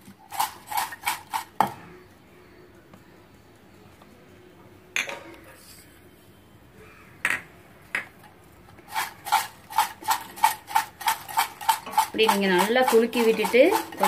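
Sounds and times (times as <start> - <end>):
chips rattling in metal pot: 0.2 - 1.6, 8.9 - 14.0.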